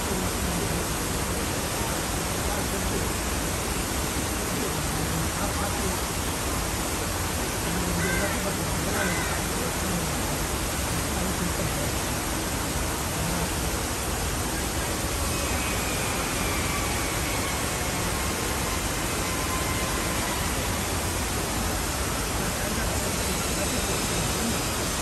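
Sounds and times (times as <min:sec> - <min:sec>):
fountain water splashing: 0:00.0 - 0:25.0.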